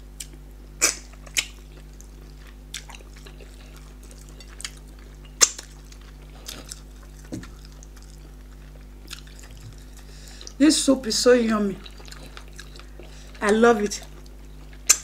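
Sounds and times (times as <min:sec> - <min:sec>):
faint steady hum: 0:00.0 - 0:15.0
mouth smacks and chewing: 0:00.2 - 0:10.6, 0:11.8 - 0:13.2.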